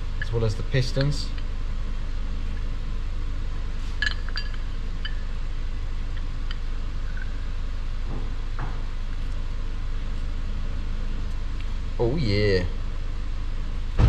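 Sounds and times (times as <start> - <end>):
steady low hum: 0.0 - 14.0
light metal clinks: 0.1 - 1.5, 4.0 - 5.3.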